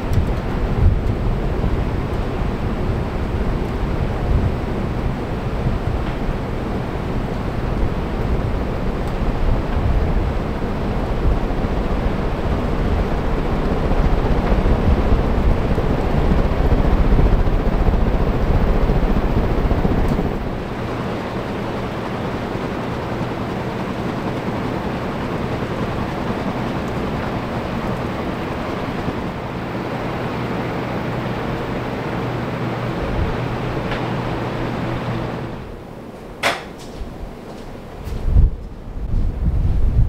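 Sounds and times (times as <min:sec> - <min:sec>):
wind buffeting on microphone: 0:00.0 - 0:21.3, 0:36.9 - 0:40.0
ceiling fans air rush: 0:00.0 - 0:40.0.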